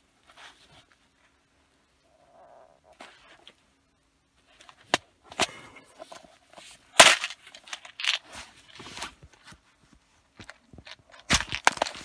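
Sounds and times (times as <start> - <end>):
connectors rattling in box: 7.0 - 9.0, 10.4 - 12.0.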